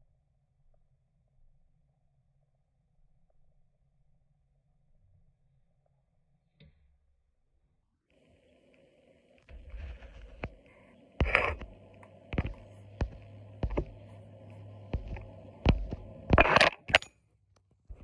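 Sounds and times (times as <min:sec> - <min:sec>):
steady hum: 0:08.2 - 0:17.1
low steady tone: 0:08.4 - 0:17.1
heavy thumps: 0:09.5 - 0:17.0.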